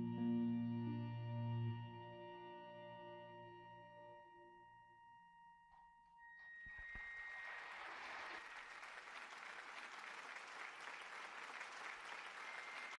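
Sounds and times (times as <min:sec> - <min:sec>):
held accordion note: 0:00.0 - 0:04.6
audience applause: 0:06.8 - 0:13.0.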